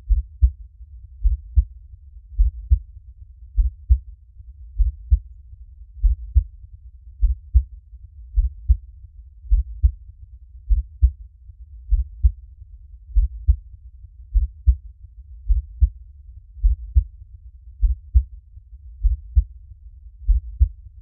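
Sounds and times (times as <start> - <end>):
heartbeat: 0.0 - 0.6, 1.2 - 1.8, 2.4 - 2.9, 3.6 - 4.1, 4.8 - 5.3, 6.0 - 6.5, 7.2 - 7.7, 8.3 - 8.8, 9.5 - 10.0, 10.7 - 11.2, 11.9 - 12.4, 13.1 - 13.6, 14.3 - 14.8, 15.4 - 16.0, 16.6 - 17.2, 17.8 - 18.3, 19.0 - 19.6, 20.2 - 20.8
faint low rumble: 0.0 - 21.0.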